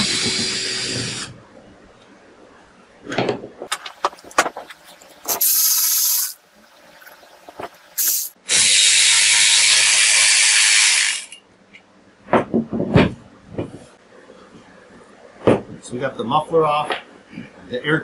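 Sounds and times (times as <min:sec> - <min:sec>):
power ratchet whirring: 0:08.0 - 0:11.4.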